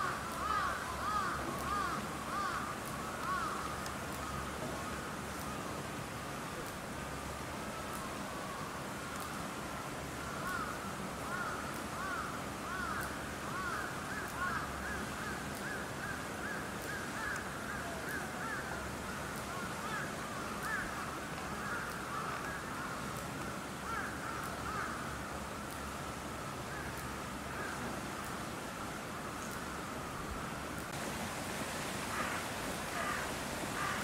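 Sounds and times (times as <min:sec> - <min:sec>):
flock of birds calling: 0:00.0 - 0:04.3, 0:32.1 - 0:34.0.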